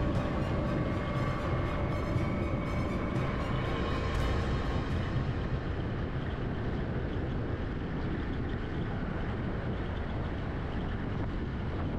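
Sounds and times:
music: 0.0s - 7.0s
wind rumble: 0.0s - 11.9s.

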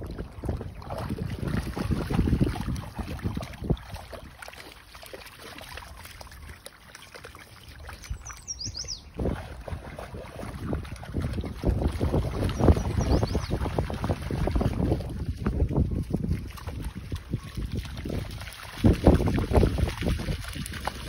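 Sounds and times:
wind buffeting microphone: 0.0s - 4.4s, 8.0s - 21.0s
dogs splashing in water: 0.0s - 21.0s
bird chirping: 8.0s - 9.1s, 12.6s - 13.6s.

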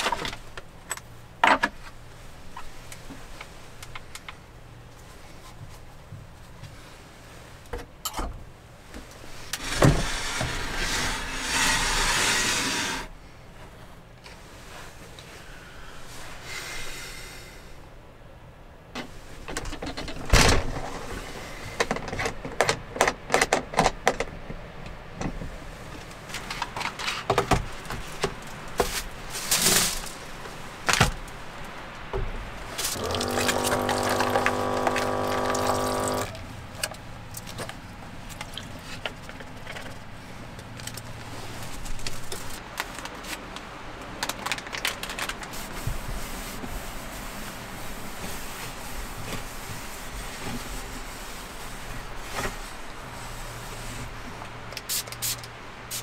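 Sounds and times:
steady hum: 32.6s - 36.4s
plastic bags rustling: 44.1s - 45.8s.

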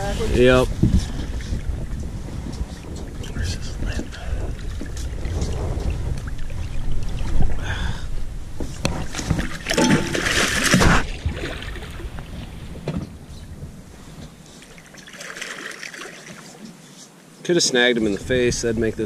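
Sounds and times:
wind on microphone: 0.0s - 14.4s, 18.1s - 19.0s
loud water splash: 9.5s - 12.0s.

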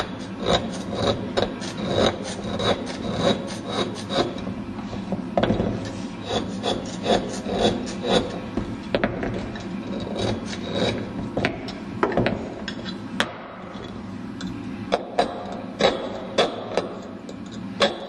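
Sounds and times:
chisel scraping slate: 0.0s - 5.0s, 5.6s - 11.4s, 15.0s - 18.0s.

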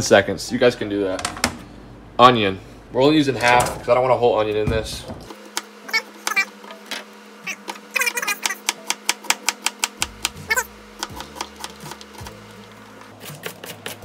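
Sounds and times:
background music: 8.7s - 14.0s.

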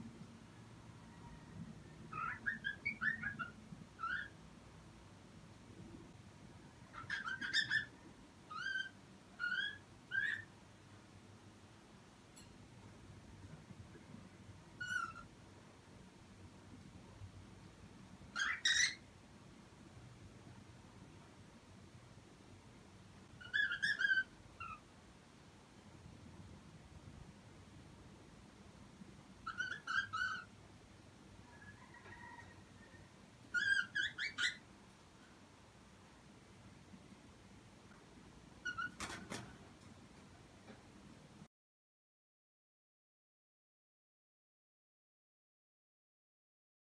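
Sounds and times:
cockatiel whistled calls: 2.1s - 4.3s, 6.9s - 7.9s, 8.5s - 10.5s, 14.8s - 15.3s, 18.4s - 19.0s, 23.4s - 24.8s, 29.4s - 30.5s, 33.5s - 34.6s
cockatiel chirping: 2.1s - 4.4s, 6.9s - 7.9s, 8.5s - 10.5s, 14.8s - 15.3s, 18.3s - 19.0s, 23.4s - 24.8s, 29.4s - 30.5s, 33.5s - 34.6s, 38.6s - 39.0s.

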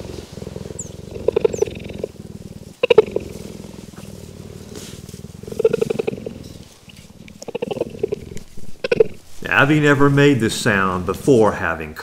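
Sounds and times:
cheetah purring call: 0.0s - 9.2s.

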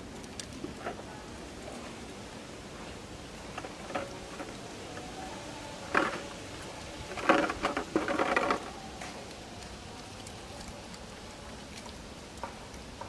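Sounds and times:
plastic bottle crinkling: 5.8s - 11.0s.

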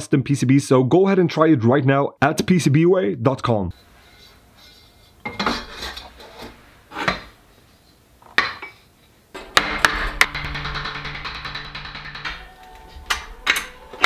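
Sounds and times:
background music: 9.4s - 14.0s
metal extrusions clanking: 9.4s - 14.0s.

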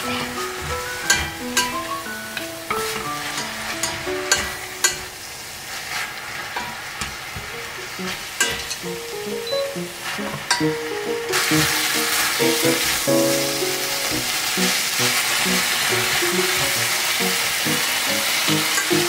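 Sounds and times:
spatula scraping and tapping pan: 0.0s - 5.1s, 6.6s - 9.0s, 10.2s - 10.7s
food sizzling in a pan: 0.0s - 19.0s.

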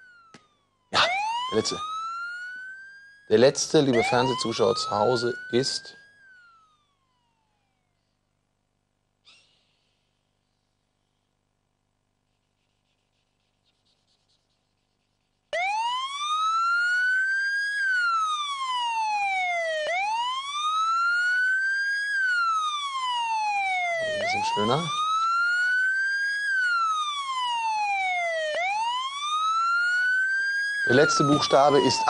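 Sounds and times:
wailing siren: 0.0s - 7.9s, 15.5s - 32.0s.

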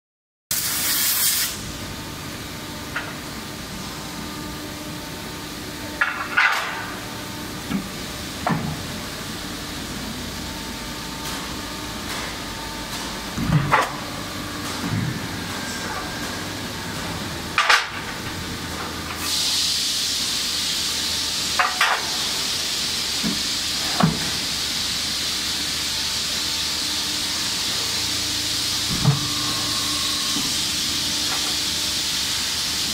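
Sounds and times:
hydraulic hiss: 0.5s - 1.6s, 19.1s - 26.5s, 27.3s - 32.9s
low machine hum: 1.6s - 32.9s.

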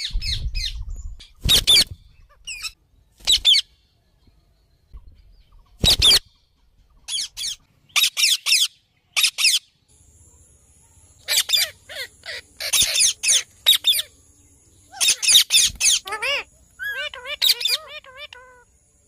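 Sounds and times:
parrots squawking: 11.2s - 14.1s, 14.9s - 18.7s.

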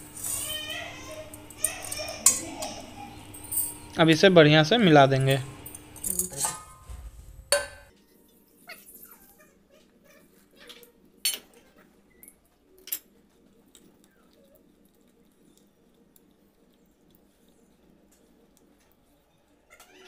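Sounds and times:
ladle clinking against metal pot: 1.4s - 4.0s, 5.6s - 7.9s.

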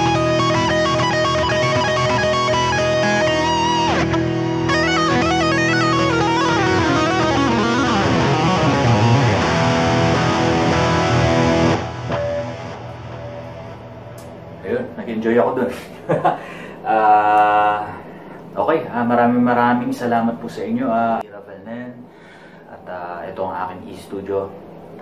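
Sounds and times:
sustained electric guitar note: 0.0s - 14.6s
electric guitar lead lines: 0.0s - 15.0s.

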